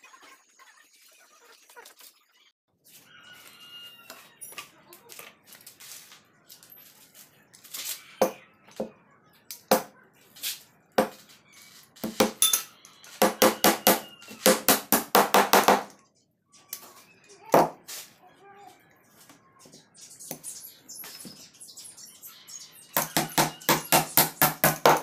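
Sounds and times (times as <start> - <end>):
hammer nailing wood: 12.0 - 12.4, 13.2 - 15.9, 23.0 - 25.0.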